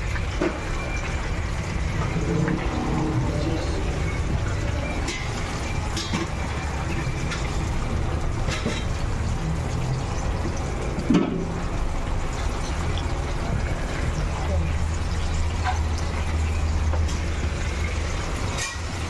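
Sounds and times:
hot oil sizzling and bubbling: 0:00.0 - 0:19.0
low rumble: 0:01.9 - 0:05.0.

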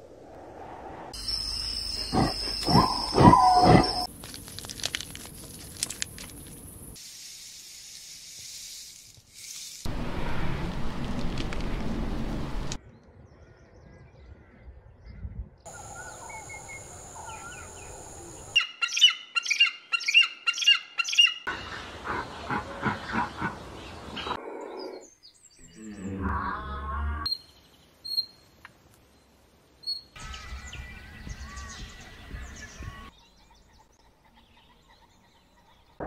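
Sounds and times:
shrill bird calls: 0:01.2 - 0:04.1, 0:18.6 - 0:21.8.

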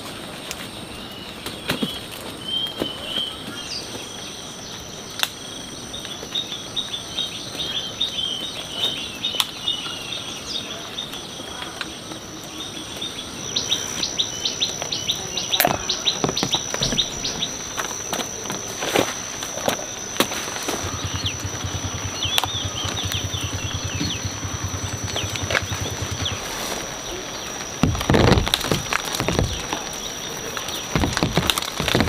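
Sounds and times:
birds chirping: 0:00.6 - 0:32.0
high insect drone: 0:03.5 - 0:32.0
sharp knocks: 0:20.7 - 0:26.8, 0:27.8 - 0:30.0, 0:30.8 - 0:32.0.

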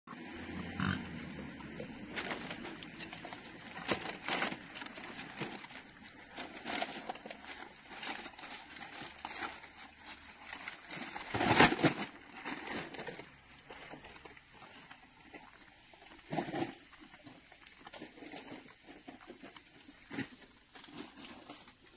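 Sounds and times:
wild boar grunting: 0:00.3 - 0:03.0
rubbish bags rustling: 0:01.4 - 0:21.9.

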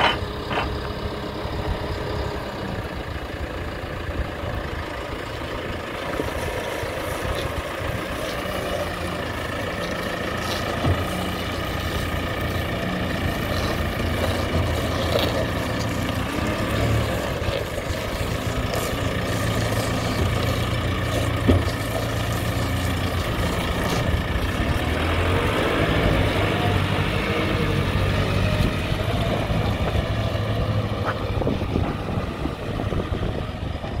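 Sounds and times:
diesel engine running: 0:00.0 - 0:34.0.

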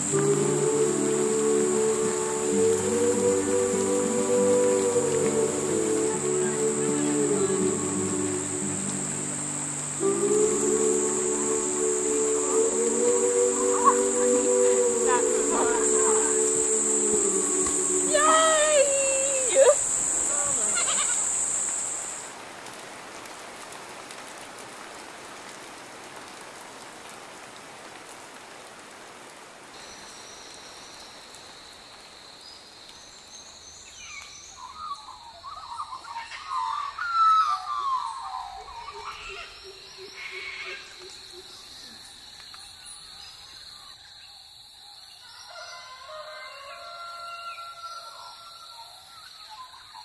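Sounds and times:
high insect buzz: 0:00.0 - 0:22.3, 0:39.1 - 0:43.7
steady high insect whine: 0:00.0 - 0:22.4, 0:37.7 - 0:50.0
soft even hiss: 0:00.0 - 0:35.3.

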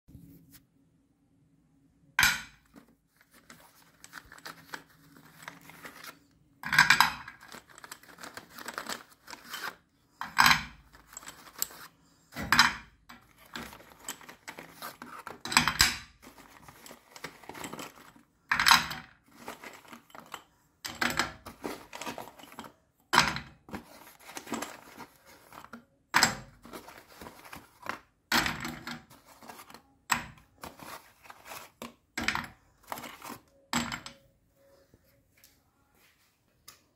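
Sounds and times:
cardboard rustling: 0:02.7 - 0:06.3, 0:07.4 - 0:09.8, 0:10.9 - 0:12.0, 0:13.2 - 0:15.5, 0:16.2 - 0:18.3, 0:19.2 - 0:20.4, 0:21.4 - 0:22.8, 0:23.6 - 0:25.8, 0:26.5 - 0:28.1, 0:29.0 - 0:29.9, 0:30.5 - 0:32.0, 0:32.8 - 0:33.5.

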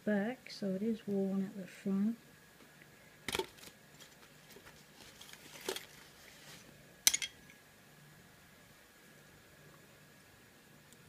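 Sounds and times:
metal tools clicking: 0:07.1 - 0:07.5.

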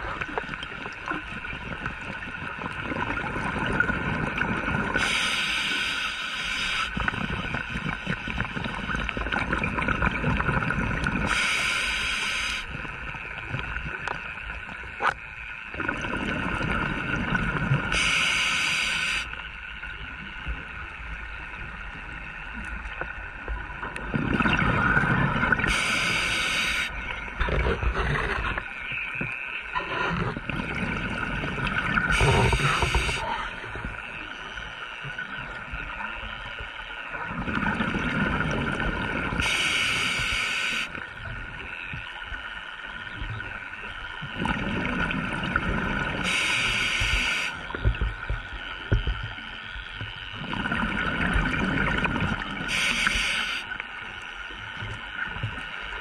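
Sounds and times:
exhaled bubbles burbling: 0:00.0 - 0:05.0, 0:07.0 - 0:11.3, 0:15.0 - 0:18.0, 0:23.9 - 0:29.0, 0:29.8 - 0:34.0, 0:37.2 - 0:39.6, 0:44.2 - 0:46.5, 0:50.3 - 0:52.8
faint steady hum: 0:00.0 - 0:56.0
regulator inhalation hiss: 0:05.0 - 0:07.0, 0:11.3 - 0:12.7, 0:17.9 - 0:19.4, 0:25.6 - 0:27.0, 0:32.1 - 0:33.3, 0:39.4 - 0:41.0, 0:46.2 - 0:47.6, 0:52.7 - 0:53.7.

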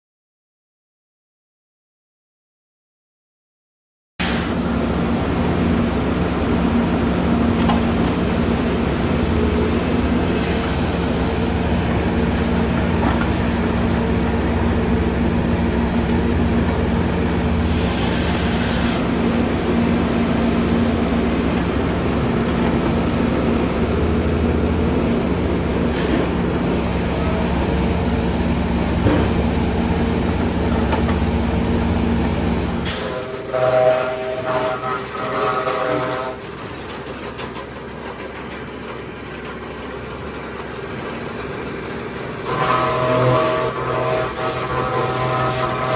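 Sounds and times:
diesel engine droning: 0:04.2 - 0:39.0.

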